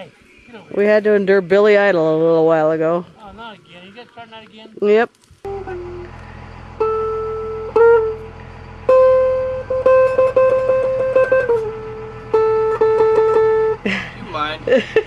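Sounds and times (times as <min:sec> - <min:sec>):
steady low hum: 0:05.4 - 0:15.0
electric guitar single notes: 0:05.5 - 0:13.8.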